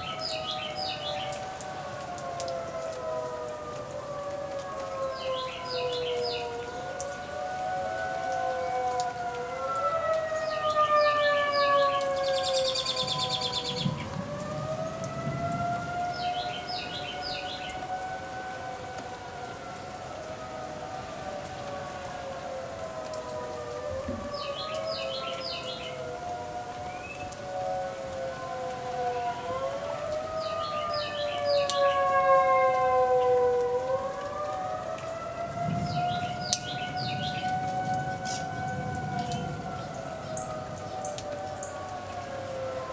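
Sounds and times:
warning sirens wailing: 0.0 - 42.9
bird chirping: 11.6 - 14.1.

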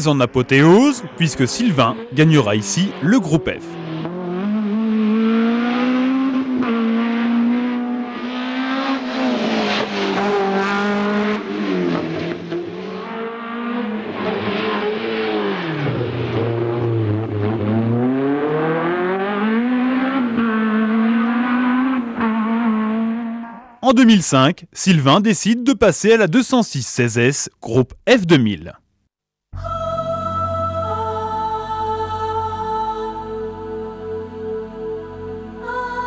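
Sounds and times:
rally car engine revving: 0.0 - 23.8.

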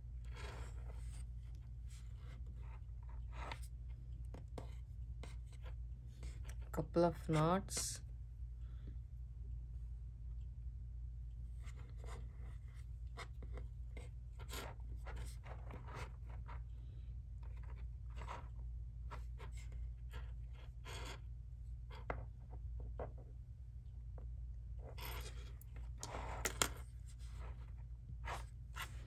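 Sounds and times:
steady low hum: 0.0 - 29.0
cord scratching and rustling: 14.4 - 16.7, 17.4 - 21.2, 24.8 - 29.0.

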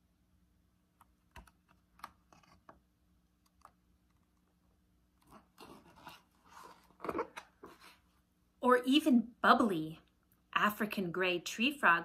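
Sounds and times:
book page turning: 2.0 - 2.8, 5.2 - 8.0.

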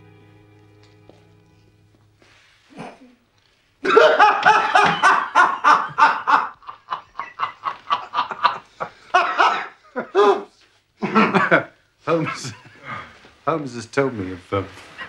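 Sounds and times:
man laughing heartily: 3.8 - 13.2.

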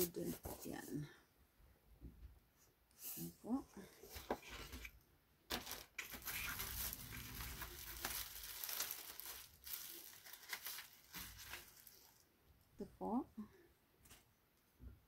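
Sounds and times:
packing material crinkling: 5.5 - 12.3.

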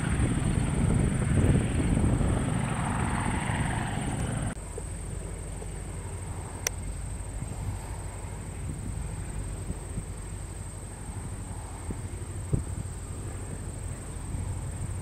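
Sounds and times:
crickets trilling: 0.0 - 15.0
distant plane engine droning: 0.0 - 15.0.

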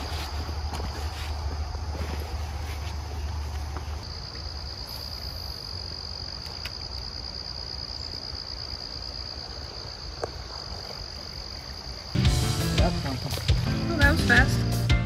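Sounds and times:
high-pitched insect trill: 4.0 - 14.5.

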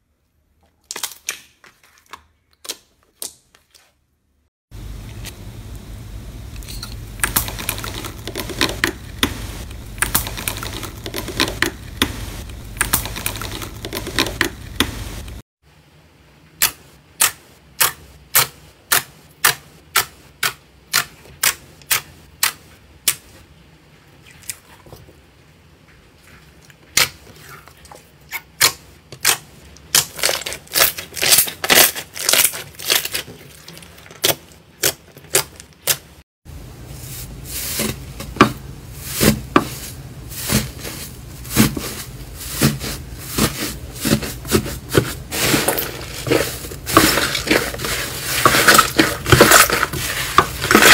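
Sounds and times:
steady low hum: 4.7 - 15.4
foil crinkling: 7.3 - 15.4, 30.0 - 35.8, 39.0 - 50.9.

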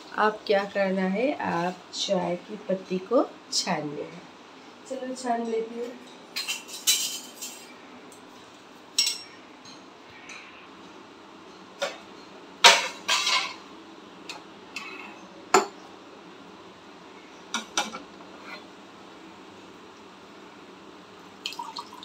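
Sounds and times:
steel utensils clinking: 6.4 - 7.7.

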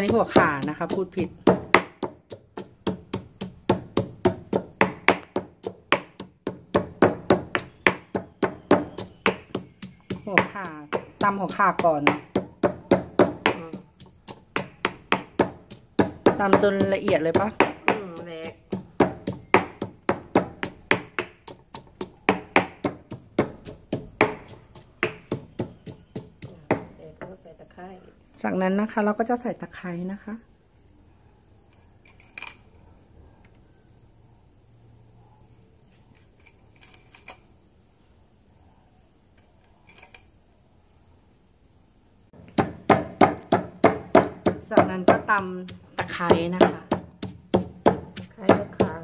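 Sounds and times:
pestle pounding in stone mortar: 0.0 - 27.3, 42.4 - 49.0.

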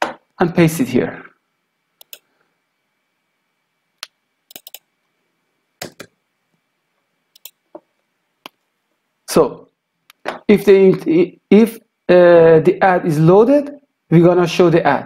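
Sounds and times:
faint high-pitched hum: 0.0 - 15.0
keyboard and mouse clicks: 2.0 - 2.2, 4.0 - 4.8, 5.8 - 6.1, 7.3 - 8.6.

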